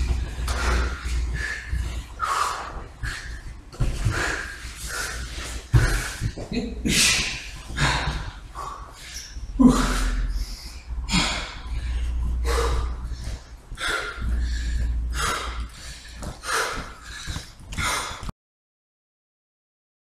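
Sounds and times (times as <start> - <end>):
man breathing hard and snorting: 0.0 - 18.3
man grunting: 6.3 - 8.4, 9.6 - 10.4.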